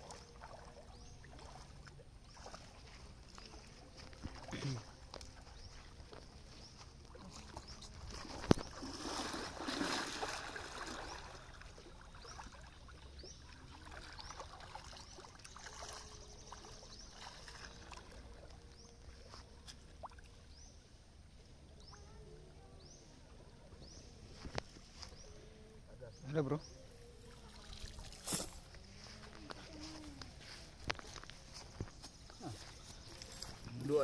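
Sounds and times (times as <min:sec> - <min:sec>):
faint water trickling: 0:00.0 - 0:34.0
water splashing and dripping: 0:07.0 - 0:19.1.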